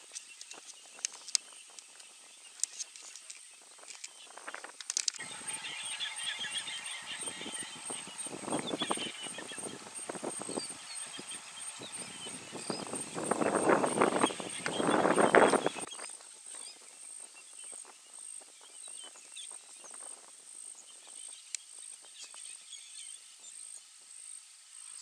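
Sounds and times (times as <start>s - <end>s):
birds chirping: 0.0s - 23.5s
steady high whine: 5.2s - 16.0s.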